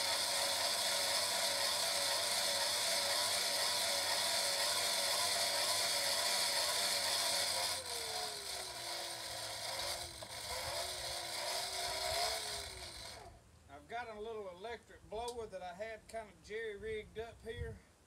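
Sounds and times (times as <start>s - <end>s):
hand-crank blower gears whirring: 0.0s - 13.4s.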